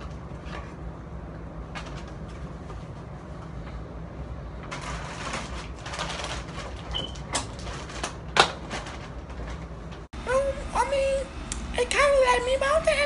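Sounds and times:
low steady hum: 0.0s - 13.0s
plastic bag rustling: 4.6s - 9.6s.

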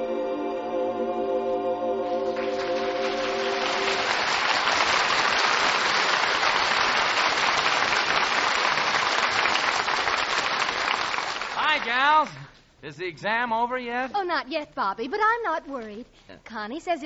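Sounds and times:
orchestra holding closing chord: 1.9s - 4.6s
studio audience applauding: 2.1s - 12.5s.

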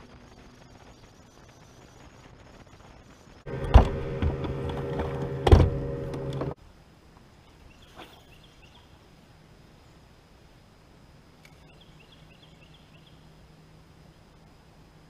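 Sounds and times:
electric trolling motor humming: 3.5s - 6.6s
loud thumps on boat: 3.5s - 6.6s.

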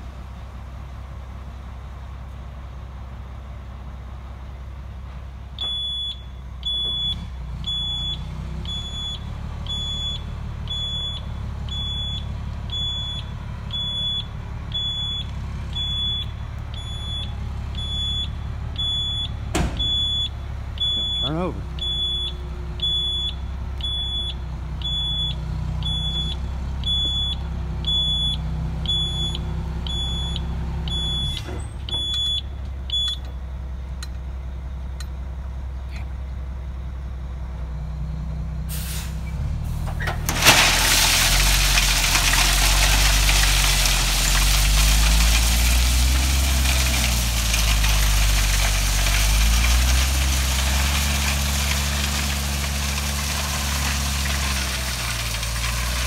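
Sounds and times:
diesel engine running: 0.0s - 56.0s
reverse alarm beeping: 5.6s - 33.2s
gravel pouring out: 38.7s - 56.0s.

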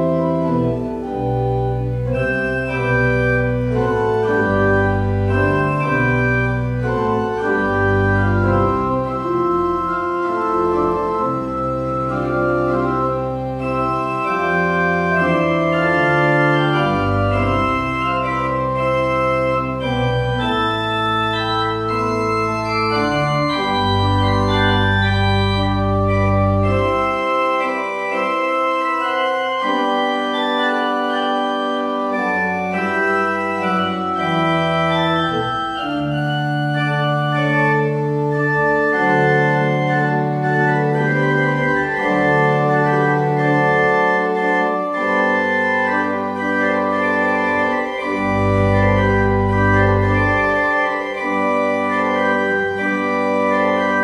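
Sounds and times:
church organ chords: 0.0s - 54.0s.

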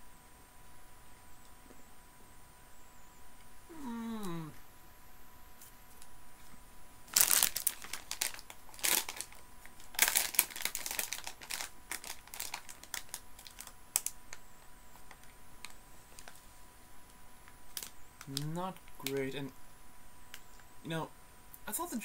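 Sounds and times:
plastic packet crinkling: 7.1s - 14.4s, 15.0s - 16.4s, 17.7s - 19.5s.

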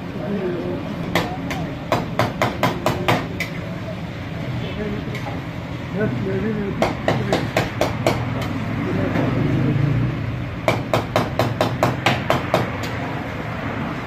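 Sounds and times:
rapid sharp knocks: 6.8s - 8.5s, 10.6s - 13.0s.

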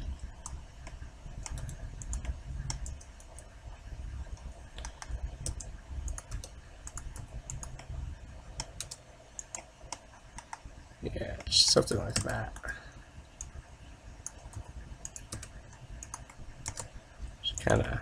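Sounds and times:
low steady rumble: 0.0s - 18.0s
keyboard keys pressed: 14.2s - 16.9s.

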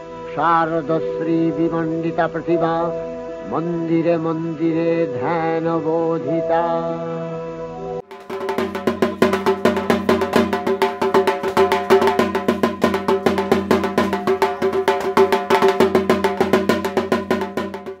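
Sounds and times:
barrel drum beaten with sticks: 8.1s - 18.0s.

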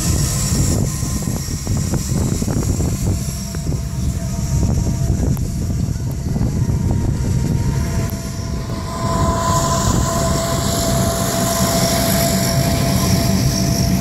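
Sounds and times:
low rumble: 0.0s - 14.0s
turboprop engine whine: 0.0s - 14.0s.

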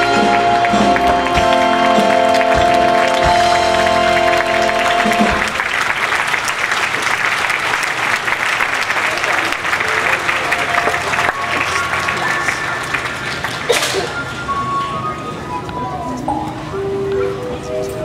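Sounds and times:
low drum beats: 0.0s - 5.7s
music with long held notes: 0.0s - 5.9s
audience applause: 0.0s - 14.6s.

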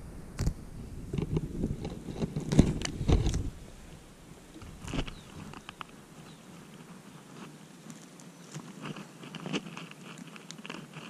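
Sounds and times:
leaves and stems rustling: 0.4s - 11.0s
stems snapping: 4.6s - 6.0s, 6.8s - 11.0s.

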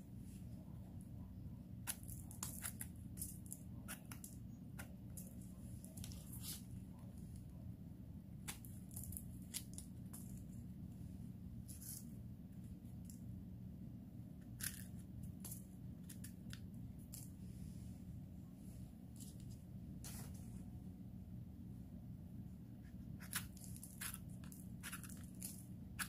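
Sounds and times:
steady low hum: 0.0s - 26.0s
knife scraping mushroom: 23.2s - 26.0s.

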